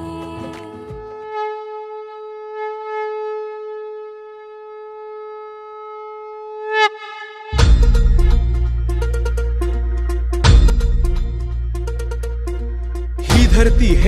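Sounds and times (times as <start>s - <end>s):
soundtrack music: 7.5s - 14.0s.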